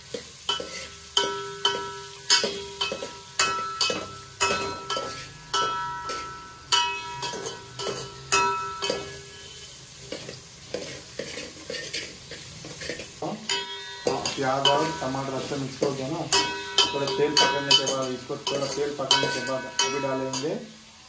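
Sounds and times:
vegetables sizzling in oil: 0.0 - 21.0
metal spoon knocking a pot: 0.5 - 9.4, 12.9 - 20.5.

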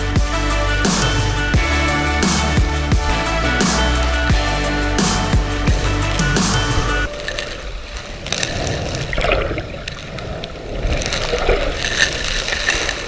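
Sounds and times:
low rumble: 0.0 - 11.5
water rushing: 5.7 - 13.0.

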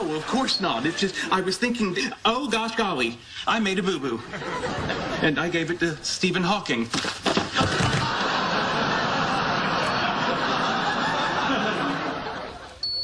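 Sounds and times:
studio audience laughing: 0.0 - 1.5, 4.2 - 5.7, 7.5 - 12.8.

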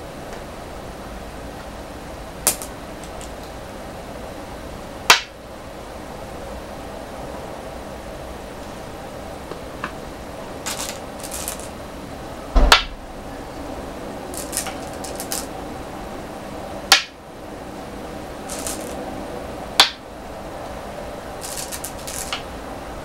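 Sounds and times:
stones clacking on wooden board: 2.5 - 3.4, 10.7 - 11.7, 14.4 - 15.5, 18.5 - 19.0, 21.4 - 22.4.

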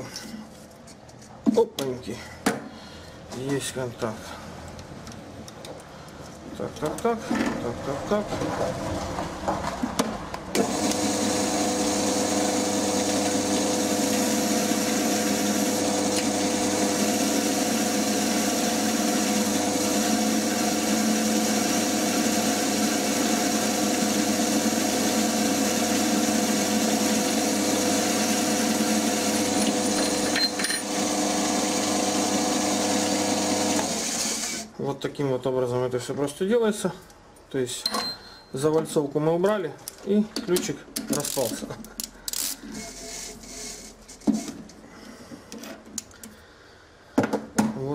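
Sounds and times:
metal lathe motor whine: 10.6 - 34.6.

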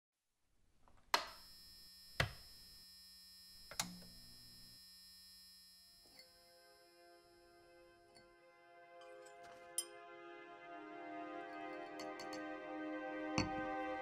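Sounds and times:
many-toned electronic hum: 1.3 - 8.6.

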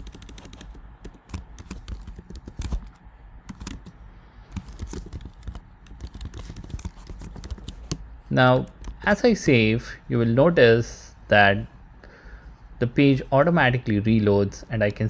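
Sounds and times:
computer keyboard typing clicks: 0.0 - 4.0, 4.6 - 8.0.

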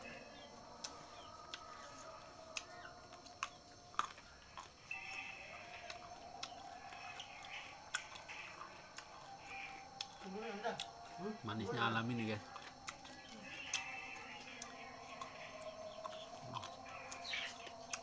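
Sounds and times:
crunchy fruit crisp clicks: 0.0 - 11.1, 12.2 - 18.0
faint steady tone: 0.0 - 18.0.

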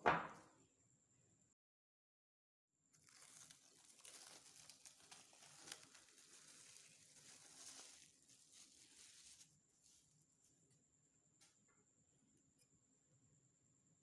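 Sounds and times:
cling film crinkling: 3.0 - 10.0.

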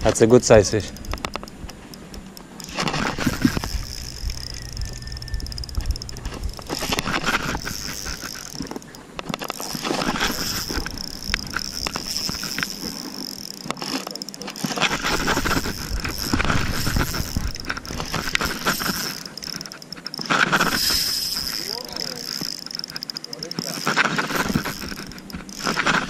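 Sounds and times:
wind rumbling on microphone: 0.0 - 8.8, 14.8 - 19.1
fishing reel ticking whir: 0.0 - 26.0.

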